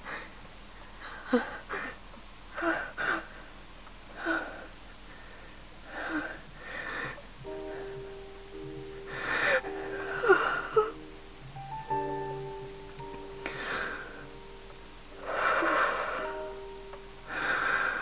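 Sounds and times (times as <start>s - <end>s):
person rasping breaths and gasps: 9.1s - 11.0s, 13.4s - 14.3s, 15.2s - 16.4s.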